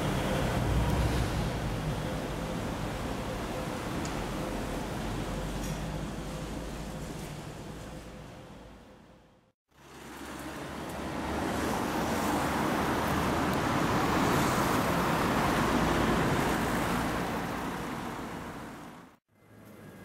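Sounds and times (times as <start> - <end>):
cars passing: 0.0 - 5.5, 9.7 - 19.2.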